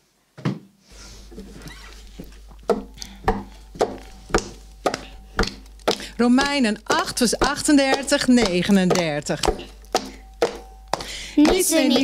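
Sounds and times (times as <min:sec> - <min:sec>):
low steady hum: 0:00.9 - 0:12.0
hand claps in steady beat: 0:04.9 - 0:06.6, 0:07.6 - 0:12.0.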